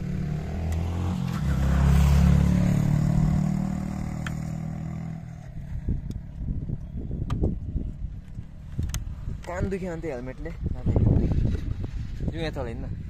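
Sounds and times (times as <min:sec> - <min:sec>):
vehicle engine passing by: 0:00.0 - 0:06.0.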